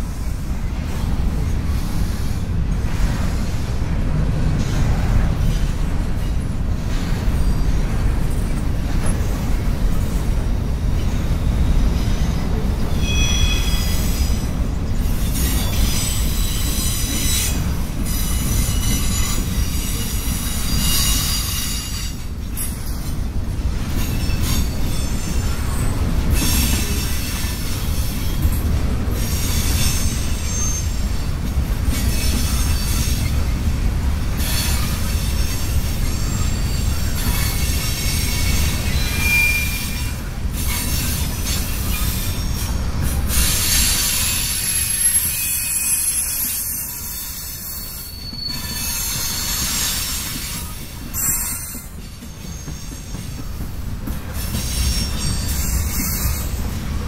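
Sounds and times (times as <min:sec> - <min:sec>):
freight train wheels rumbling: 0:00.0 - 0:57.0
high-pitched wheel squeals: 0:11.1 - 0:14.5, 0:29.2 - 0:31.2, 0:34.4 - 0:42.7, 0:43.3 - 0:53.2.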